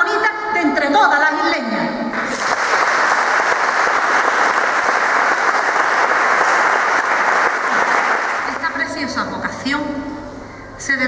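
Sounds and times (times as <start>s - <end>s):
audience applauding: 2.2s - 8.8s.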